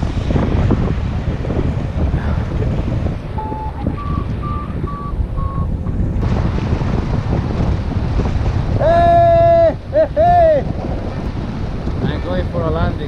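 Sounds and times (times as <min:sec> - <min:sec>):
wind rushing over microphone: 0:00.0 - 0:13.0
variometer beeps: 0:03.4 - 0:05.7.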